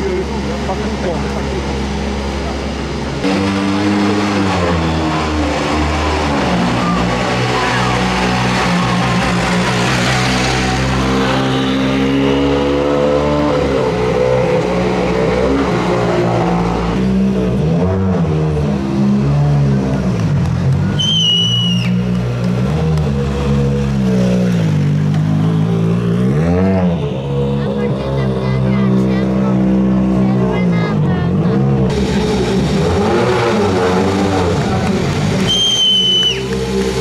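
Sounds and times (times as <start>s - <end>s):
rally car engines blipping throttle: 0.0s - 37.0s
high whistle: 20.9s - 22.1s, 35.4s - 36.6s.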